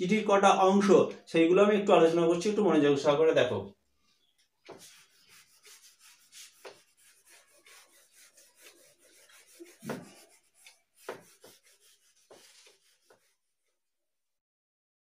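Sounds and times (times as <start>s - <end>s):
eraser rubbing whiteboard: 4.6s - 13.7s.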